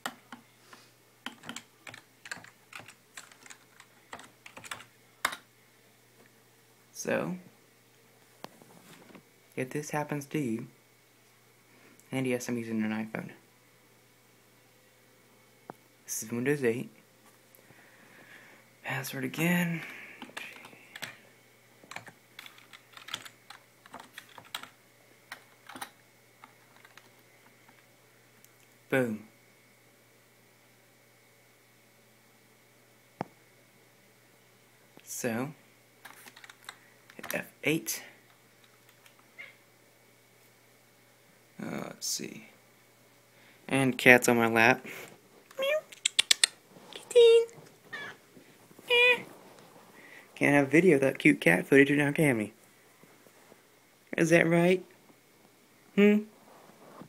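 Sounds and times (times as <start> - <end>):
keyboard keys clicking: 1.2 - 5.4, 21.9 - 24.7, 25.3 - 27.1, 36.1 - 37.4.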